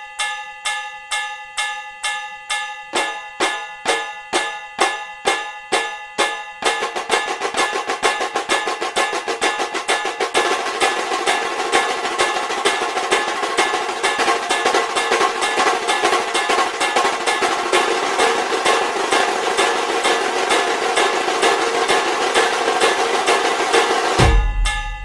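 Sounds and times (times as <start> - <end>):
drum with metallic ring: 0.0 - 25.0
deeper drum: 24.1 - 25.0.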